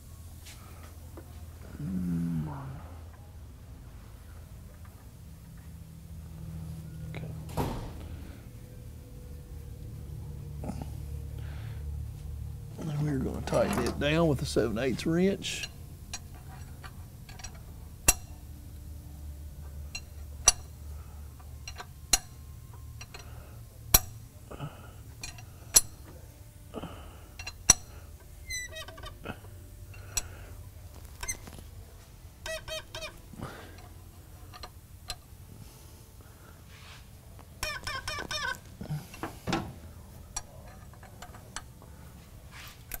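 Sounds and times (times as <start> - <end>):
faint low hum: 0.0 - 43.0
wrench clicking: 15.6 - 18.4, 19.9 - 20.7, 21.6 - 22.4, 23.0 - 23.3, 23.9 - 24.2, 25.2 - 26.0, 27.4 - 27.9, 32.4 - 33.2, 33.8 - 35.3, 37.6 - 39.3.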